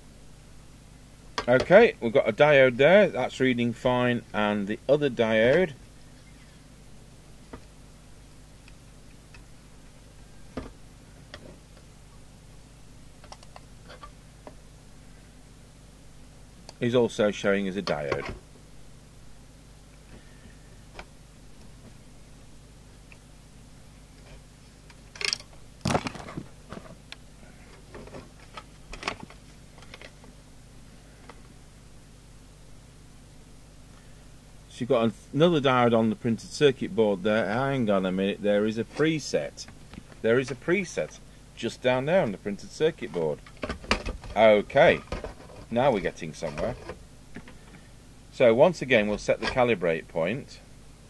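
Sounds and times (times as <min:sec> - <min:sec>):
faint steady low hum: 0:00.0 - 0:51.0
clicks and knocks of handling metal: 0:24.9 - 0:26.9.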